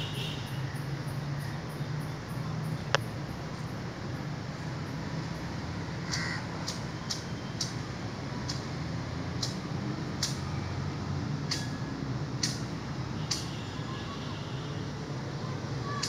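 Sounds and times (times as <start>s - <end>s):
sharp high-pitched ticks: 6.1s - 10.5s, 11.4s - 13.6s.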